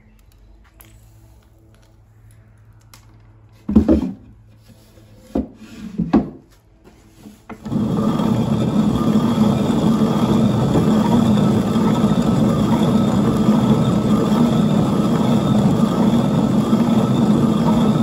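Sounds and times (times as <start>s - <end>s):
hand mill grinding grain: 7.6s - 18.0s.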